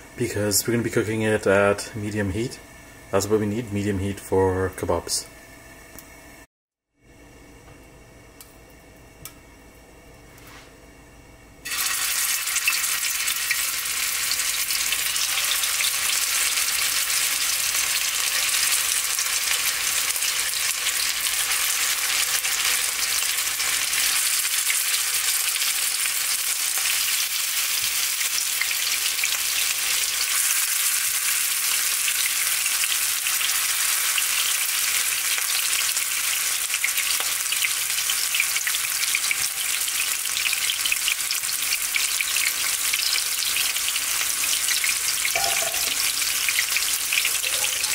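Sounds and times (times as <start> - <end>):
kebabs sizzling in hot oil: 11.6 - 47.9.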